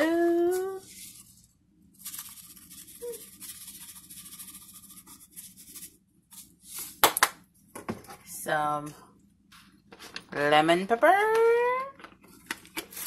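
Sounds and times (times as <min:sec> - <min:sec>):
spice shaker rattling: 0:02.0 - 0:06.5.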